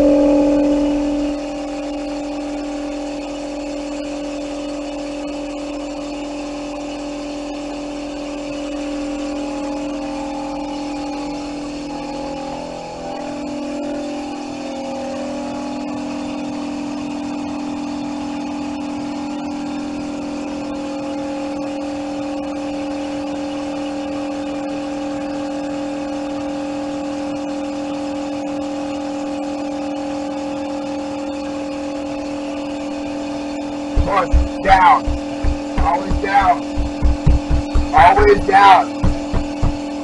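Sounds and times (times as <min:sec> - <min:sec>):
electric motor hum: 0:34.0 - 0:40.0.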